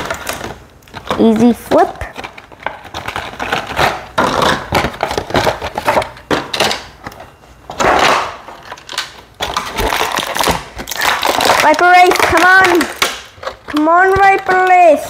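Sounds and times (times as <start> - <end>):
plastic bags crinkling: 8.6 - 14.9.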